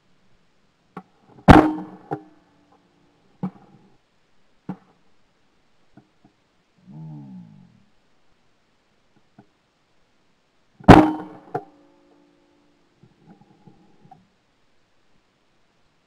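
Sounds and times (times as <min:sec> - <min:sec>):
shotgun shot: 0:01.5 - 0:02.2, 0:10.9 - 0:11.6
sharp crack with ringing: 0:01.5 - 0:02.4, 0:10.8 - 0:12.2.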